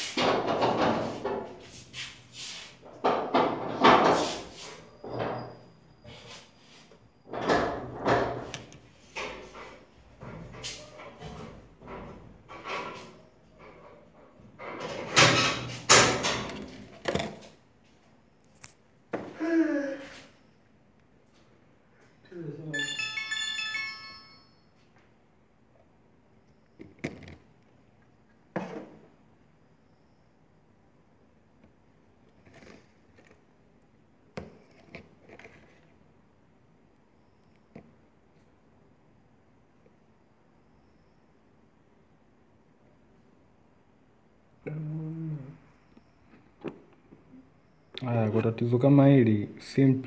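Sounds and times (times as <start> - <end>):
objects knocking on a bench: 0.2 - 1.6, 3.0 - 4.3
phone ringtone: 22.7 - 24.8.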